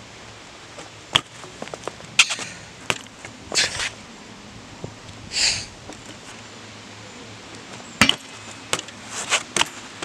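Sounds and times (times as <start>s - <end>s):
bike tyre scuff on concrete: 0.8s - 4.0s, 8.1s - 10.0s.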